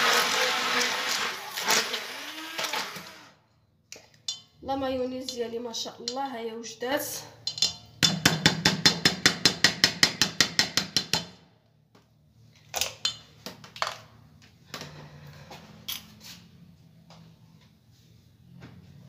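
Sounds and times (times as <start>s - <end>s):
hand blender motor hum: 0.0s - 3.4s.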